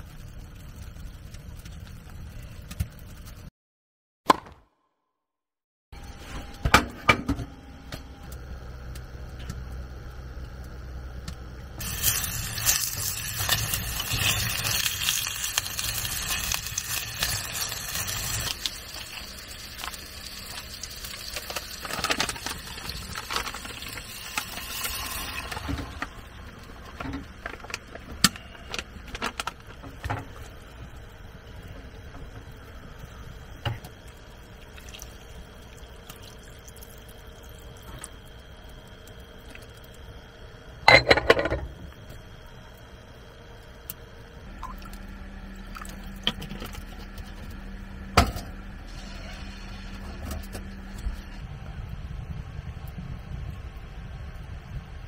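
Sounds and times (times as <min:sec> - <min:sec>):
food sizzling in hot oil: 0:11.8 - 0:25.9.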